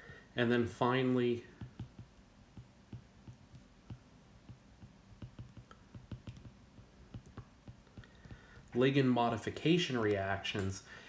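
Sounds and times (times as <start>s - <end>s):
stylus tapping on tablet: 1.5s - 8.8s.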